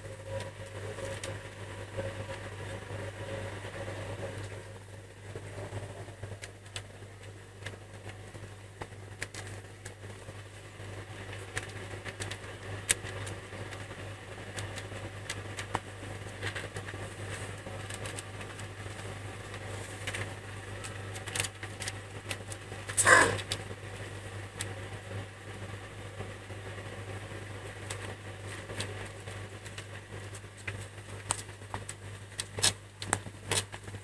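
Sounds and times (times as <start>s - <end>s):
steady low hum: 0.0s - 34.0s
kittens suckling clicks and smacks: 11.4s - 23.7s, 27.8s - 34.0s.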